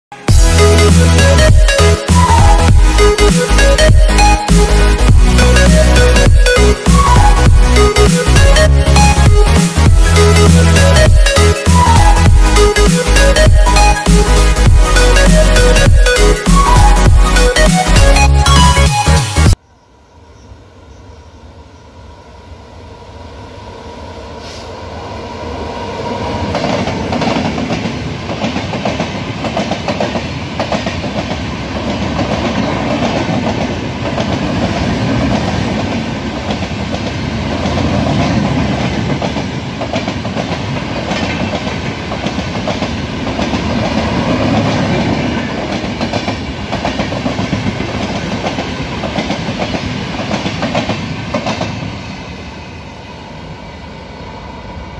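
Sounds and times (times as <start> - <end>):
electric locomotive approaching: 0.1 - 54.9
train rumbling past: 19.5 - 54.9
wheels clickety-clack over rails: 26.5 - 52.0.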